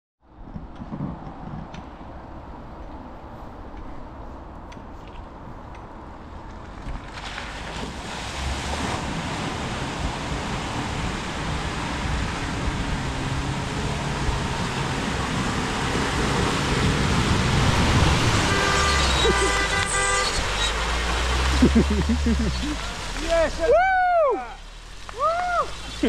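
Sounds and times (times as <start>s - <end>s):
tyres splashing through muddy water: 6.7s - 26.0s
car engine labouring: 7.4s - 26.0s
car horn tooting: 18.2s - 20.9s.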